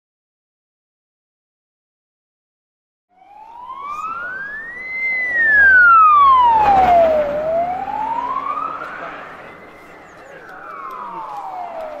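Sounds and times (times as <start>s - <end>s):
wailing siren: 3.1s - 12.0s.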